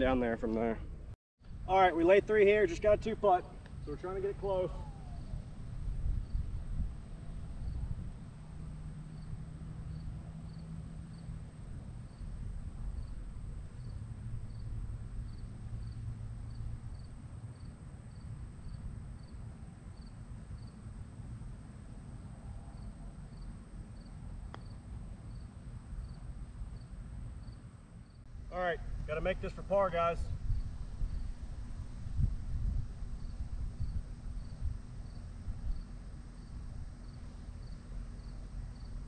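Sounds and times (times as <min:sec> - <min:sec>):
low steady rumble: 0:00.0 - 0:39.0
cricket chirping: 0:09.0 - 0:28.3, 0:33.2 - 0:39.0.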